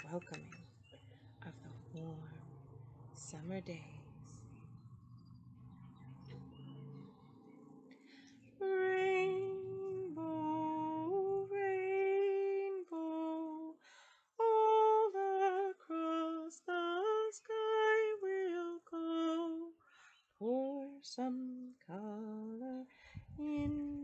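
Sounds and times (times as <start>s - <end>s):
woman singing unaccompanied: 0.0s - 0.8s, 1.4s - 2.5s, 3.1s - 4.6s, 8.6s - 19.8s, 20.4s - 24.0s.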